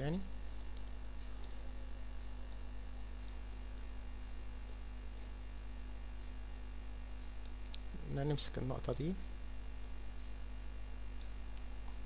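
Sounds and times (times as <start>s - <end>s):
electrical mains hum: 0.0s - 12.0s
faint ticks: 0.4s - 5.4s.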